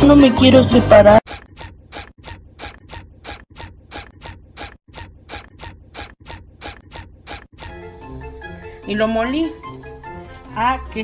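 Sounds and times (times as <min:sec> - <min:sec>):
hand kneading dough rasping: 0:01.2 - 0:07.8.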